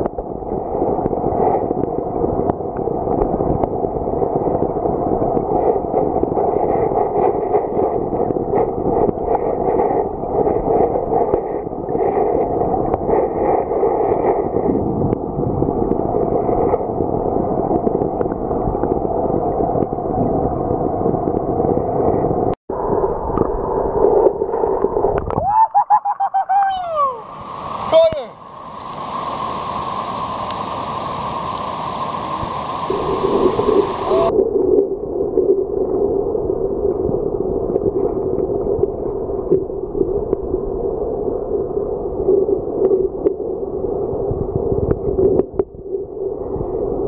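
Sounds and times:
underwater rush of flowing water: 0:00.0 - 0:47.0
bubbles gurgling: 0:32.8 - 0:47.0.

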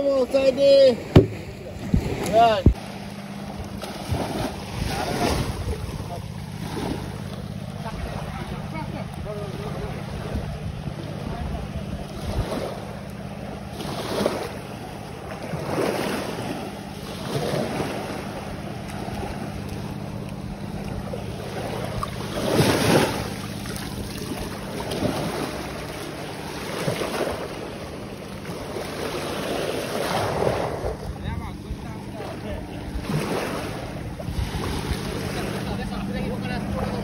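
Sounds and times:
small waves washing on beach: 0:00.0 - 0:37.0
wind rumbling on microphone: 0:01.1 - 0:02.8, 0:03.6 - 0:18.0, 0:30.0 - 0:37.0.

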